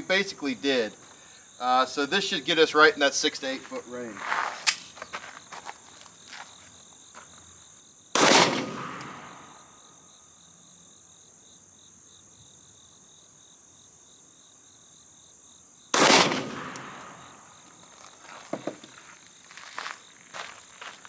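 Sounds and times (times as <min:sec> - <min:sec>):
pistol shots with echo: 0:08.2 - 0:09.7, 0:15.9 - 0:17.6.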